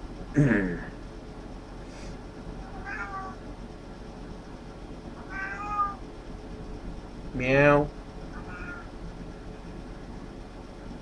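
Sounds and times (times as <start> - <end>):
cat meowing: 2.7 - 3.4, 5.2 - 6.0, 8.3 - 8.9.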